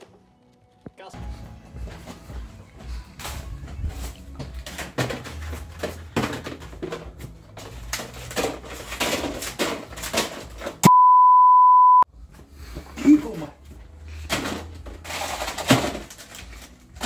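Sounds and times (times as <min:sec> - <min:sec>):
tackle packets clicking and rattling: 0:04.0 - 0:10.8, 0:14.2 - 0:17.0
electronic beep: 0:10.8 - 0:12.1.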